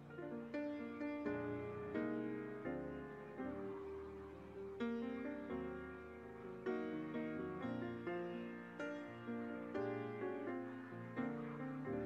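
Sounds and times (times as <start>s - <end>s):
slow gentle instrumental music: 0.0s - 12.0s.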